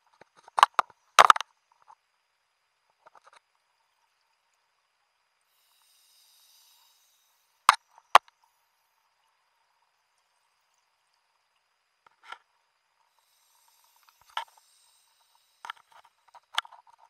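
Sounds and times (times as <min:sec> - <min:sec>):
soft hiss: 0:00.0 - 0:17.0
faint clicks: 0:10.1 - 0:17.0.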